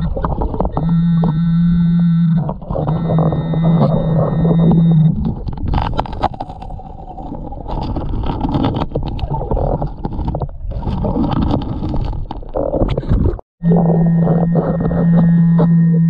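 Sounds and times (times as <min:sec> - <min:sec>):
churning water: 0:00.0 - 0:15.2
stones clicking underwater: 0:05.2 - 0:13.4.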